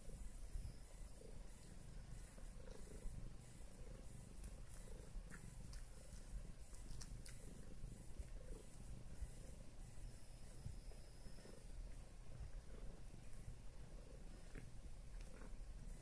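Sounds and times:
cat purring: 0.0 - 16.0
faint clicks: 4.4 - 5.9.

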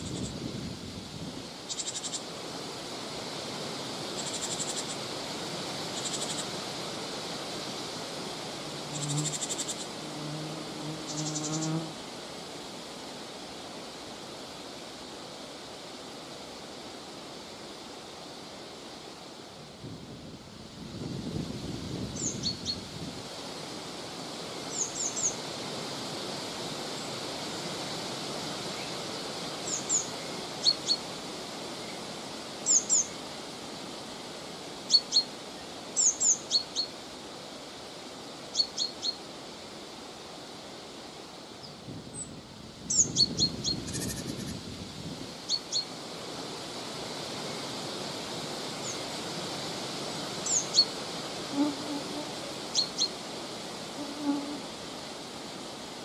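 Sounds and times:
wind through grass and trees: 0.0 - 56.0
small birds calling: 1.7 - 2.2.

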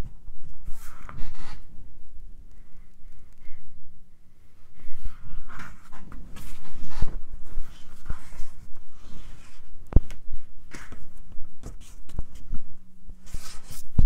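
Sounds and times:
fabric rustling on cutting mat: 4.8 - 14.0.

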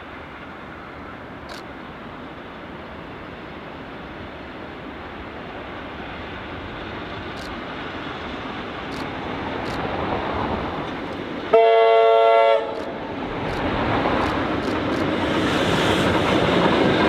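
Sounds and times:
train horn blast: 11.5 - 12.9
electric train running: 12.6 - 17.0.

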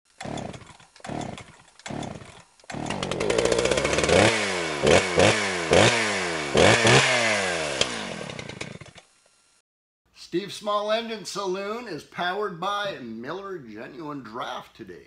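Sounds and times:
chainsaw engine revving: 0.1 - 9.2.

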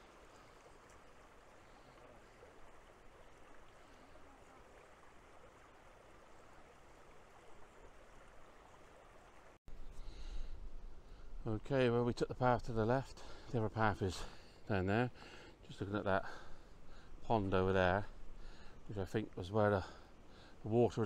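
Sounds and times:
stream rushing: 0.0 - 9.6.

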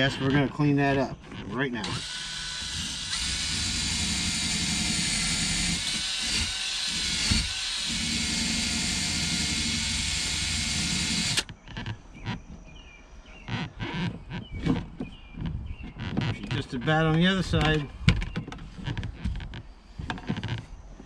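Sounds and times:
drill motor whine: 1.8 - 11.5.

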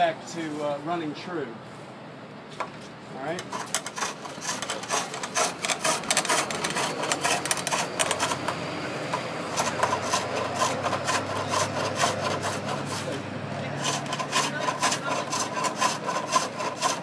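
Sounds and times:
gouge scraping wood on lathe: 3.4 - 17.0.

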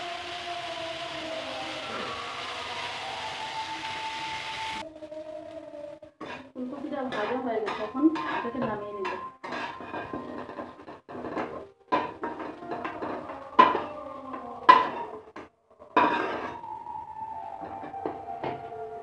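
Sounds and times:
metal spatula clanking on pan: 7.1 - 13.9, 14.7 - 15.4.

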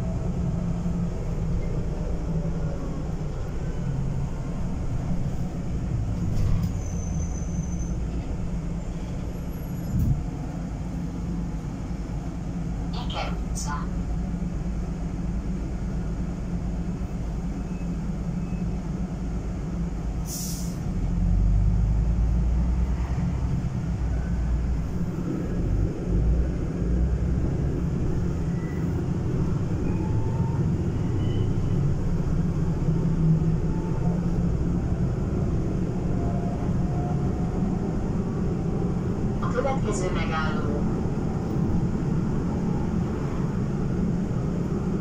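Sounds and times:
bus diesel engine: 0.0 - 45.0
compressed air hiss: 20.3 - 20.8.

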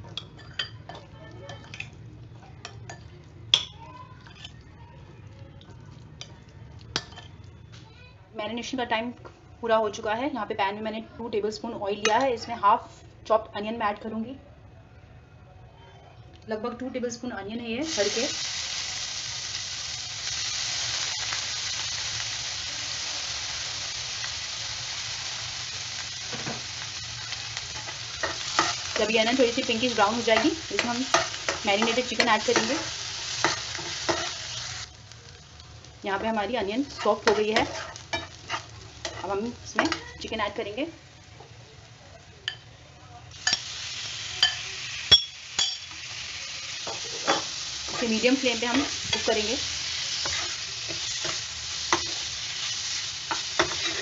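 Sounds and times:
onion sizzling in oil: 17.3 - 54.0
clinks against glass: 44.4 - 46.0.

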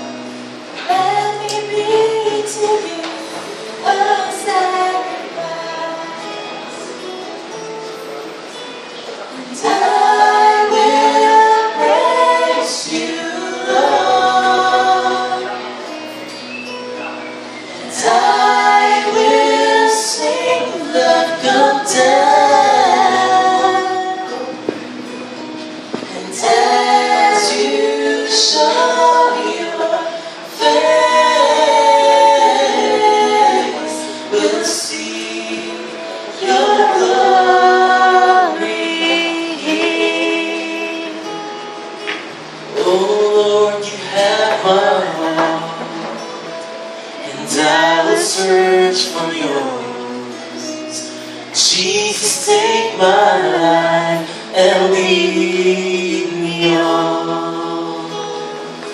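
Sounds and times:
acoustic guitar: 0.0 - 58.9
woman singing: 0.8 - 6.8, 17.8 - 24.8, 26.0 - 41.7
man singing: 26.0 - 41.4, 42.7 - 46.3, 47.2 - 58.8.

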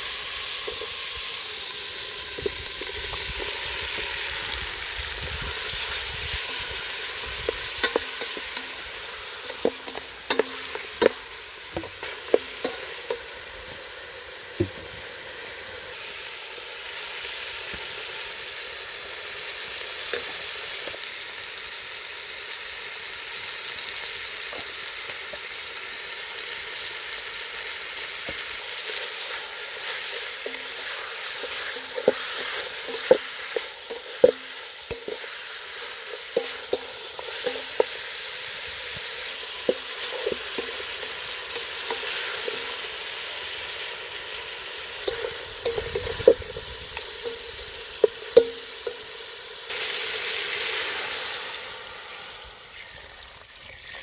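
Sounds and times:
meat sizzling in pot: 0.0 - 54.0
wooden spoon knocking pot: 45.0 - 46.6.

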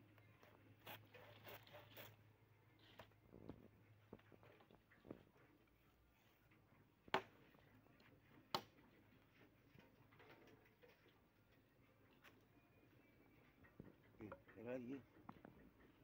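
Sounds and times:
machete chopping wood: 7.1 - 7.3.

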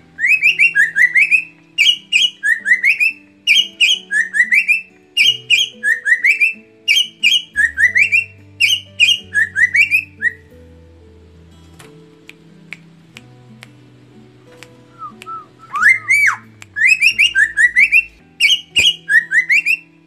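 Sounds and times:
bird singing whistled notes: 0.2 - 10.5, 14.9 - 20.0.

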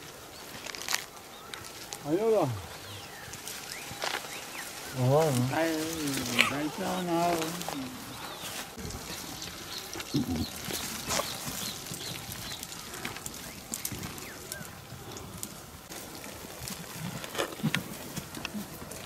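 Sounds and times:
hooves shuffling: 0.0 - 19.0
animal low calls: 4.9 - 15.5.

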